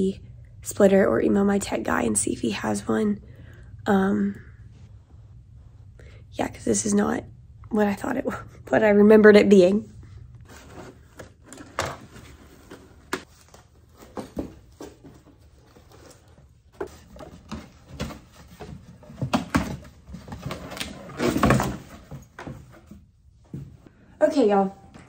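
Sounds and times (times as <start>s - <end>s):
cardboard scraping rustle: 10.5s - 22.4s.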